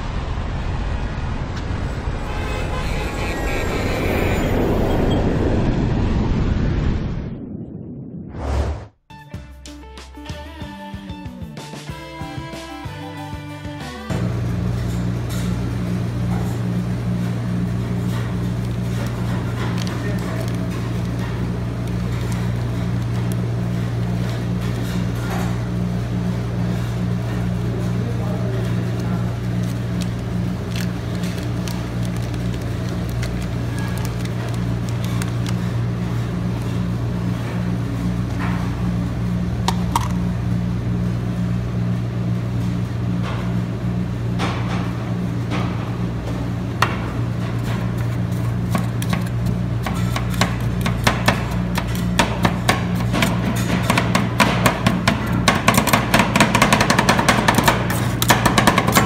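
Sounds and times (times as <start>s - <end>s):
steady low hum: 14.0s - 59.0s.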